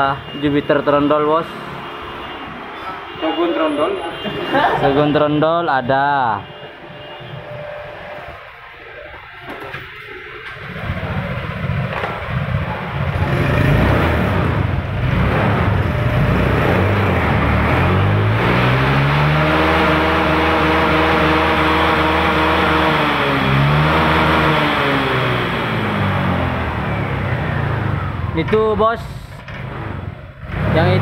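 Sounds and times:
scooter engine revving: 10.6s - 28.5s.

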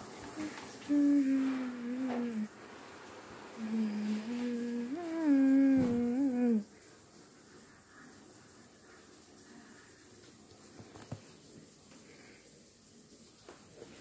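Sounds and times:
person humming in a low voice: 0.3s - 2.5s, 3.6s - 6.7s.

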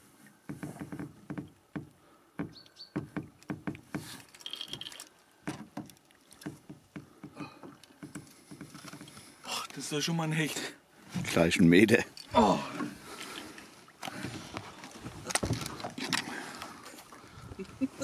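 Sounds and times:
knocks against boat hull: 0.5s - 4.1s.

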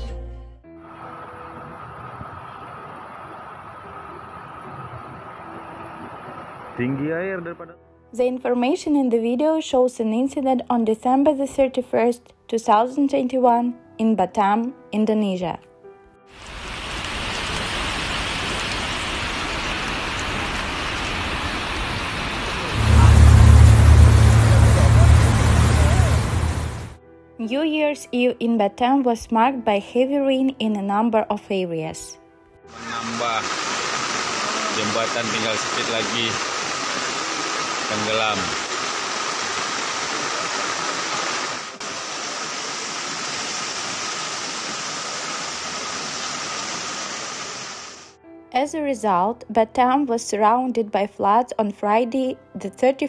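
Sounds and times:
rain hissing: 16.3s - 27.0s, 32.7s - 48.1s
rushing floodwater: 16.4s - 27.0s, 32.7s - 48.1s
loud low rumble: 22.1s - 27.0s.

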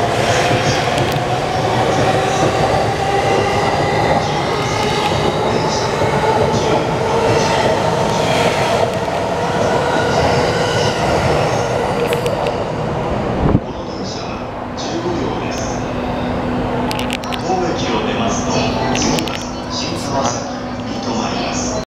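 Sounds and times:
rail joint clacks: 0.0s - 12.7s, 16.8s - 21.3s
train wheels rolling: 0.0s - 14.2s.

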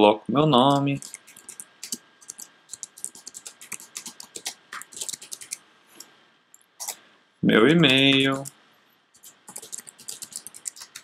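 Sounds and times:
typing on computer keyboard: 0.7s - 5.6s, 9.2s - 11.0s.

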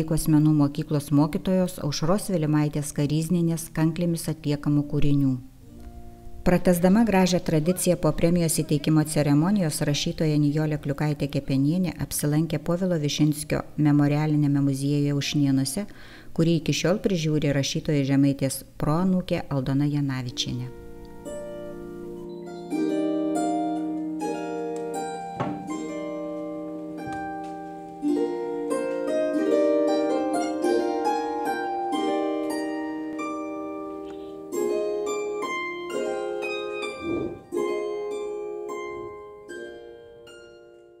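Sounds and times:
plucked harp-like string melody: 21.2s - 33.8s, 34.5s - 40.6s.

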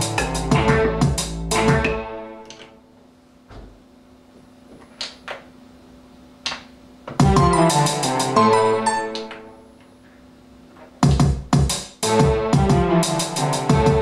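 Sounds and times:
keyboard pattern with piano notes: 0.0s - 2.6s, 7.2s - 9.6s, 12.0s - 14.0s.

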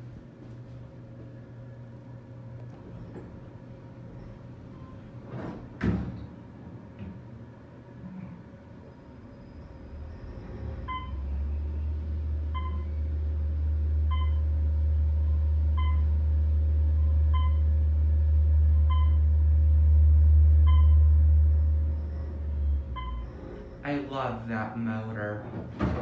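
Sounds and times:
elevator motor humming: 0.0s - 26.0s
short electronic beep: 18.8s - 19.3s, 20.6s - 22.3s.

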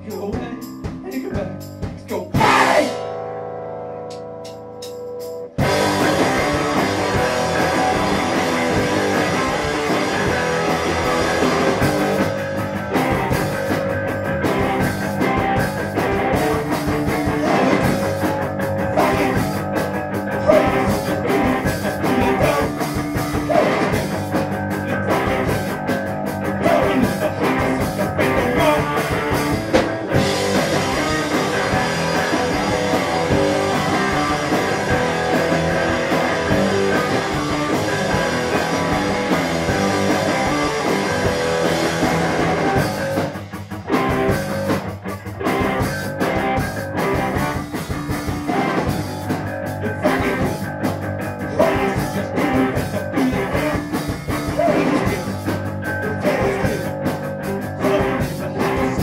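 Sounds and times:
live rock band playing: 0.0s - 59.0s
person singing into microphone: 18.9s - 19.5s, 20.3s - 22.8s, 49.8s - 50.7s, 51.4s - 59.0s.

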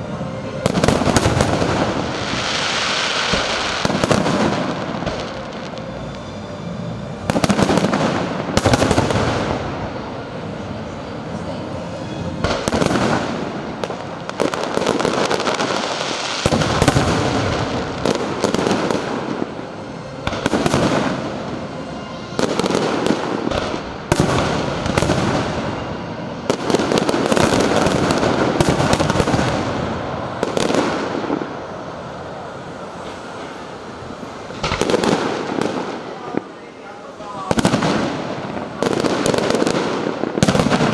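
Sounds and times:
firework crackling: 0.0s - 40.9s
firework bangs: 0.5s - 6.4s, 7.2s - 10.4s, 12.4s - 40.9s.

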